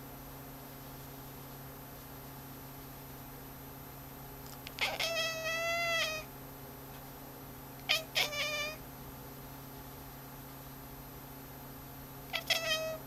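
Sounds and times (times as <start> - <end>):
cat chirping: 4.8 - 6.3, 7.8 - 8.8, 12.3 - 13.0
cat meowing: 4.8 - 6.3, 7.8 - 8.8, 12.3 - 13.0.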